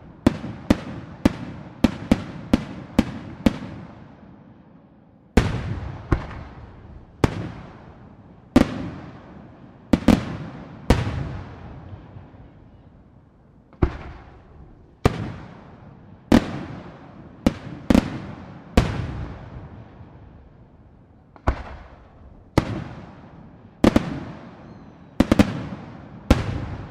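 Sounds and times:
firework bangs echoing: 5.4s - 12.8s, 13.7s - 20.2s, 21.4s - 26.9s.

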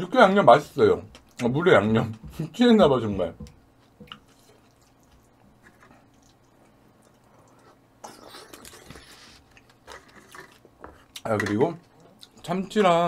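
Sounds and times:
person chewing food: 3.8s - 11.3s.

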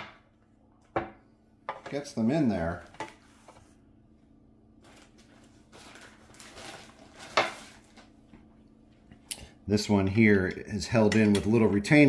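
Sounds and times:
faint steady hum: 0.0s - 12.0s
handling noise at workbench: 5.2s - 8.1s.

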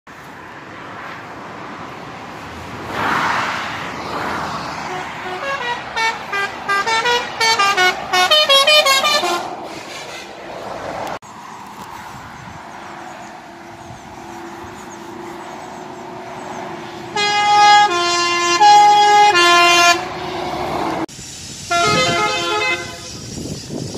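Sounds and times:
road traffic: 0.1s - 23.9s
vehicle passing: 0.2s - 21.1s
truck air horn melody: 4.8s - 10.6s, 17.0s - 21.0s, 21.6s - 23.2s.

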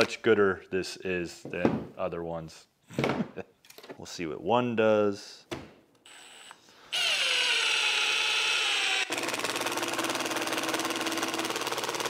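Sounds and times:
impact driver motor whining: 6.1s - 12.0s
impact driver hammering: 9.0s - 12.0s.

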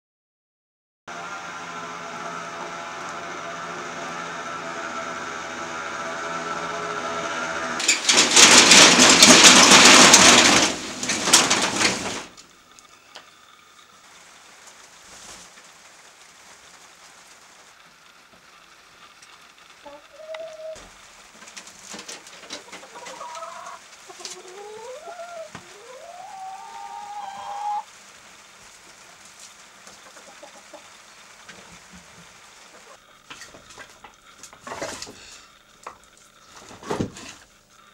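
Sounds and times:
loud hissing rain: 7.3s - 37.9s
hens clucking: 19.8s - 27.9s, 29.8s - 35.1s
rooster crowing: 24.4s - 27.9s.

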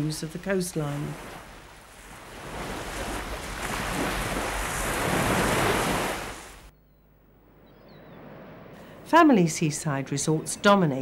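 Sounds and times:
surf breaking against rocks: 1.0s - 6.6s.

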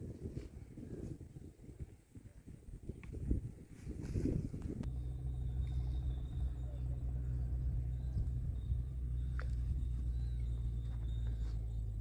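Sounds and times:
engine humming: 4.7s - 12.0s.

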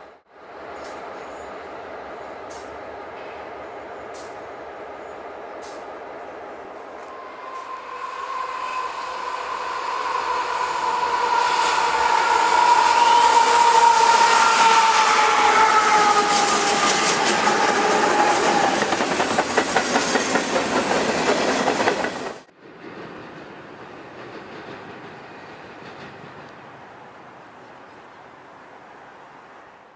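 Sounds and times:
locomotive whine: 0.0s - 22.5s
train wheels clattering: 15.5s - 26.7s.

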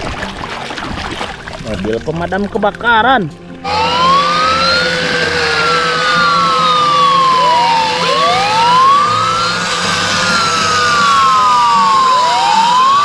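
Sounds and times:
steady low tone: 1.2s - 13.0s
toy fire truck sirens wailing: 3.6s - 13.0s.

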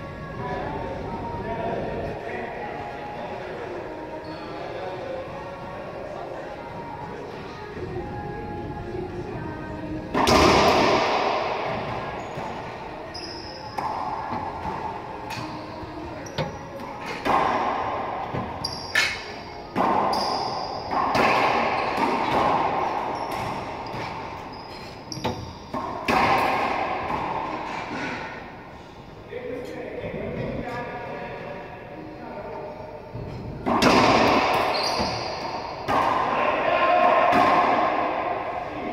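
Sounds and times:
sneakers squeaking on floor: 4.2s - 4.6s, 12.0s - 17.2s, 18.4s - 26.0s, 34.5s - 35.9s.

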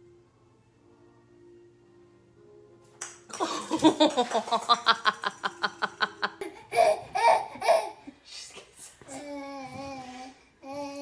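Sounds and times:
baby laughing: 4.6s - 8.2s.

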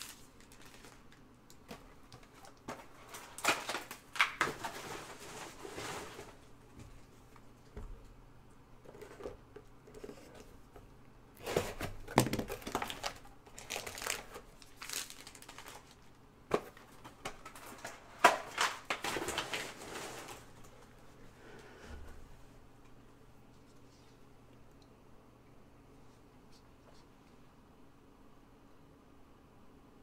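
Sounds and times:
plastic wrap snapping: 0.0s - 4.8s, 11.4s - 20.5s
plastic wrap crinkling: 0.0s - 6.5s, 11.4s - 21.0s.

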